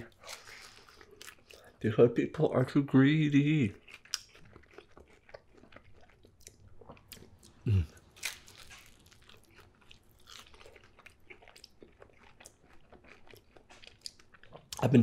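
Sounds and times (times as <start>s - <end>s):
chewing pizza crunches: 0.0s - 1.9s, 2.6s - 15.0s
person humming: 7.7s - 7.9s.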